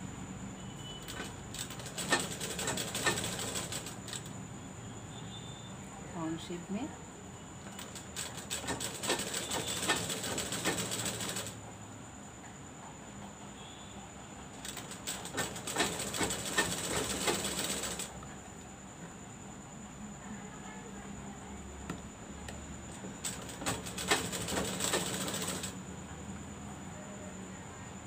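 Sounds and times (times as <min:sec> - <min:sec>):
sewing machine clatter: 0:01.0 - 0:04.3, 0:07.6 - 0:11.6, 0:14.6 - 0:18.2, 0:22.9 - 0:25.8.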